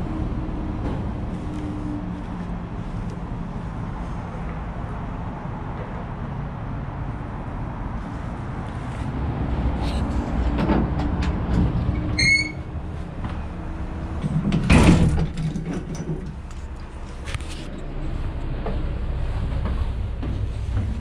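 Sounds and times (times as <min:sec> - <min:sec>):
heavy door squeak: 0:11.9 - 0:12.7
clicks and handling noise: 0:14.2 - 0:18.8.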